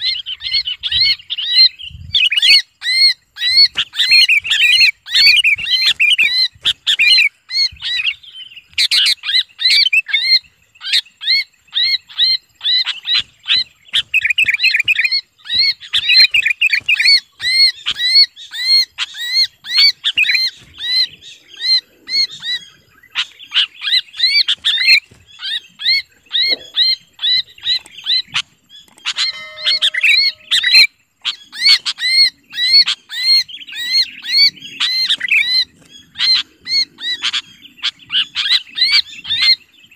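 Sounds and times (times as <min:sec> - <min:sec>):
bird distress screams: 0:00.0 - 0:08.1, 0:29.0 - 0:39.6.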